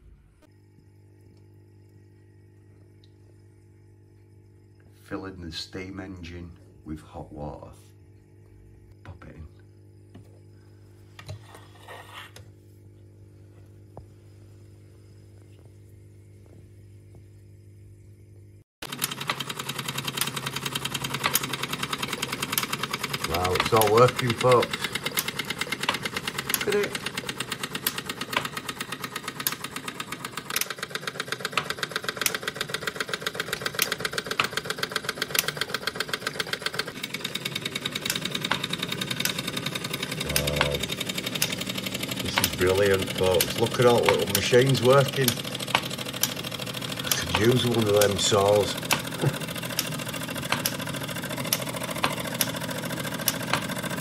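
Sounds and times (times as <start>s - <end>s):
faint electrical hum: 0.0s - 18.6s
steam engine ticking clatter: 18.9s - 54.0s.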